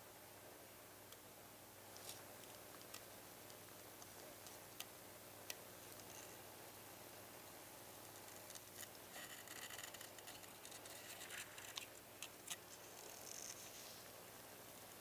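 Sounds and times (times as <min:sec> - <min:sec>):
tape peeling scratchy rustling: 0:08.0 - 0:14.0.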